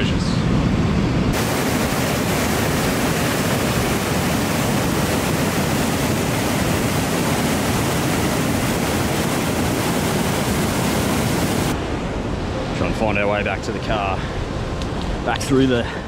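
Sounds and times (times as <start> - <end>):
river rushing over boulders: 1.3 - 12.2.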